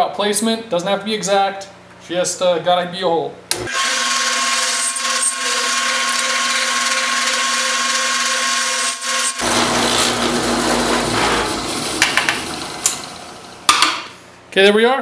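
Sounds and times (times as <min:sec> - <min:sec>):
drill press drilling metal: 0:03.7 - 0:14.1.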